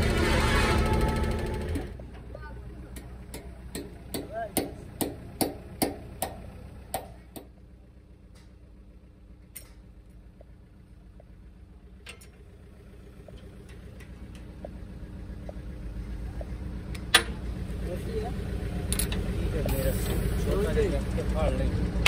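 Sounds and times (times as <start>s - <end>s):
steady low rumble: 0.0s - 22.0s
sharp metallic taps: 2.9s - 7.6s.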